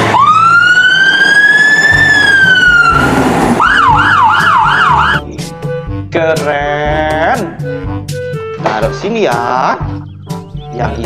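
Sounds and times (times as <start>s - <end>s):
electronic siren wailing: 0.0s - 5.2s
siren yelping warble: 0.0s - 5.2s.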